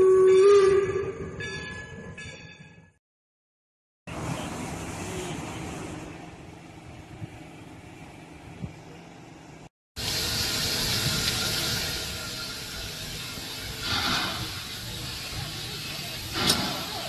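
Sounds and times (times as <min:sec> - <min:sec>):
steam hissing: 0:10.0 - 0:17.0.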